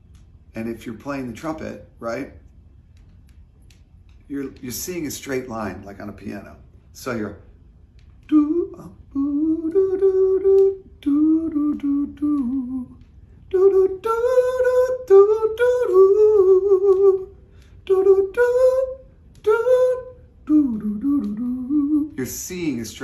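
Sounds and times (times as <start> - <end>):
man humming a melody: 8.3 - 22.3.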